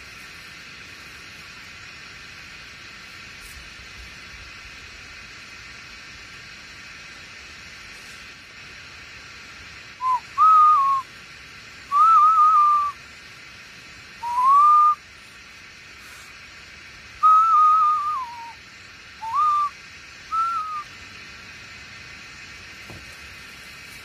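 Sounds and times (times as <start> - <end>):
faint background hiss: 0.0 - 24.0
person whistling a tune: 10.0 - 11.0, 11.9 - 13.0, 14.2 - 15.0, 17.2 - 18.6, 19.2 - 20.9.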